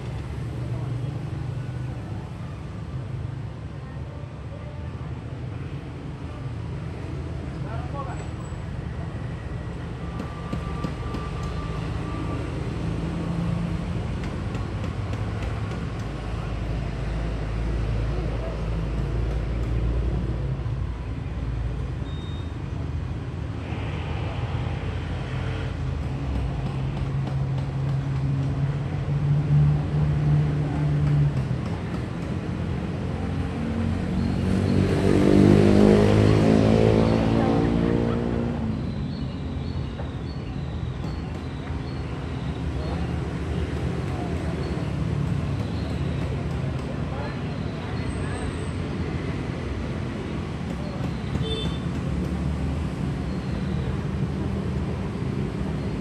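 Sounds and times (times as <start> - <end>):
traffic rumble and hiss: 0.0 - 56.0.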